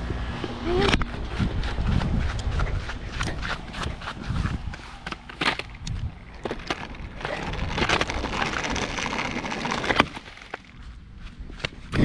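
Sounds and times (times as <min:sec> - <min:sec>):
kick scooter rolling on grass: 0:00.0 - 0:12.0
footsteps on grass: 0:01.0 - 0:06.4.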